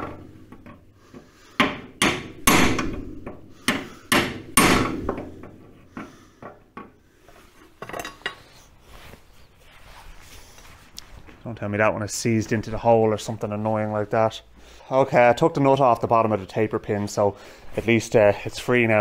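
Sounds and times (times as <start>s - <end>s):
hammer strikes on steel: 1.5s - 5.8s.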